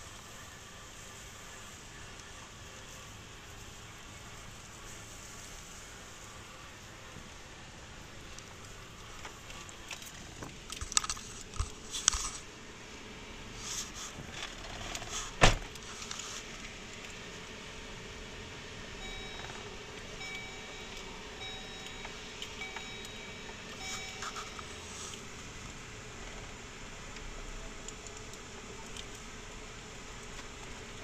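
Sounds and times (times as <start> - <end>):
faint short beeps: 19.0 - 25.0.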